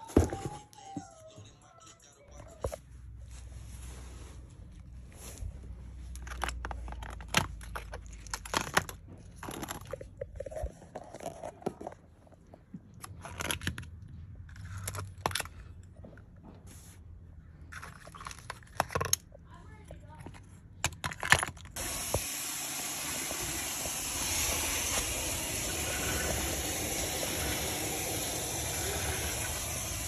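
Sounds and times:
plastic pumps clicking and scraping: 6.1 - 16.3.

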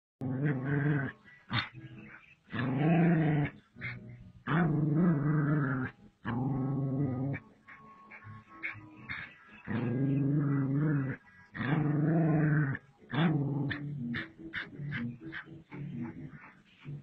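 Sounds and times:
dog growling: 0.2 - 1.8, 2.5 - 7.4, 8.1 - 17.0.

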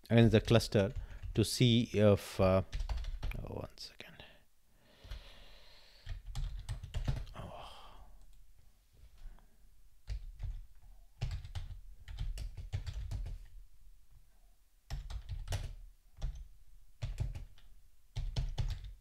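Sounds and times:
typing on computer keyboard: 0.9 - 1.4, 2.7 - 3.4, 6.0 - 7.3, 10.1 - 10.6, 11.2 - 13.4, 14.9 - 19.0.

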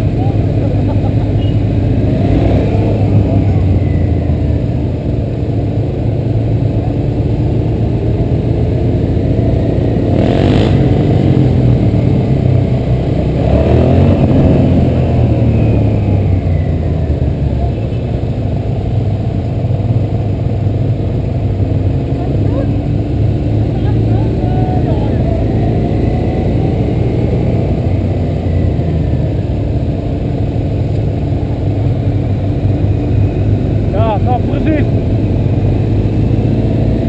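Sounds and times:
motorcycle engine running: 0.0 - 37.0
wind and road noise: 0.0 - 37.0.

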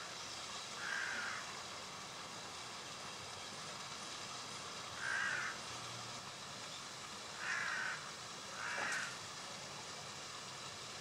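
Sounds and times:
steady hiss: 0.0 - 11.0
crow cawing: 0.8 - 1.4, 5.0 - 5.6, 7.4 - 9.2.

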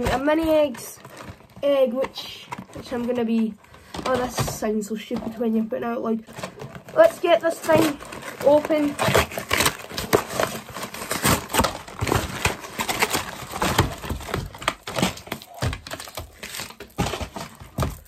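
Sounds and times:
cardboard box being torn open: 6.3 - 18.0.

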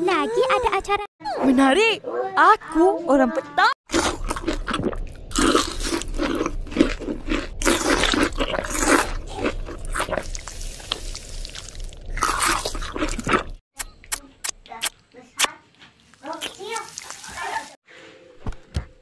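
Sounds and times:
cartoon crunching bites: 3.9 - 14.9.

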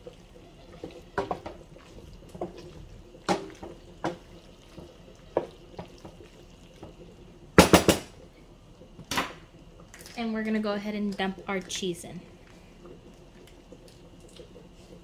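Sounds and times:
wooden spoon scraping metal pot: 0.0 - 6.3
stirring macaroni: 0.0 - 7.6, 11.0 - 15.0.

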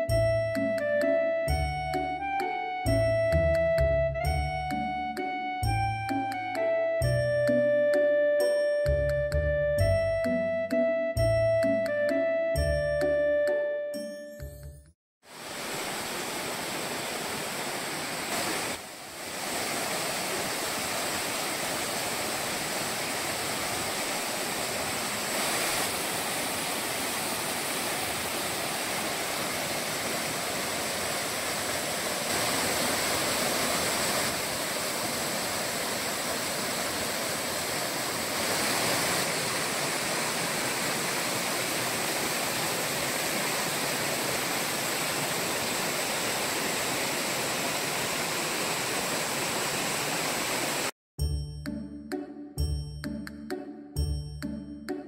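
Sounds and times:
waterfall rushing into pool: 15.2 - 50.9.

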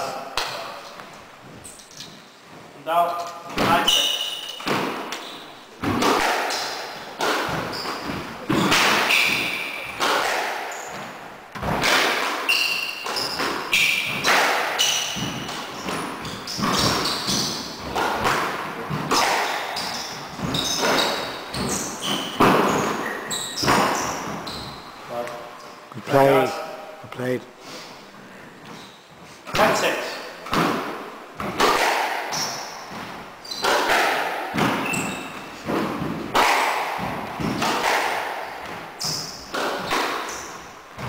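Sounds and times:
shoes squeaking on wooden floor: 0.4 - 26.4, 27.7 - 29.5, 32.3 - 36.4, 38.4 - 41.0
squash ball cracking off rackets: 3.4 - 25.4, 30.4 - 41.0.

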